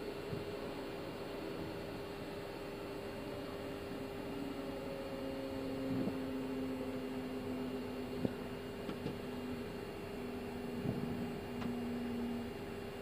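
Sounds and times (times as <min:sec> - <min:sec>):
aircraft engines idling: 0:00.0 - 0:13.0
steady humming tones: 0:00.0 - 0:13.0
ventilation hiss: 0:00.0 - 0:13.0.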